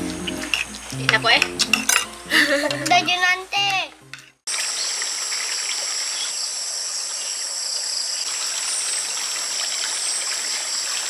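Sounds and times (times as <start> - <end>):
insect chorus drones: 4.5 - 11.0.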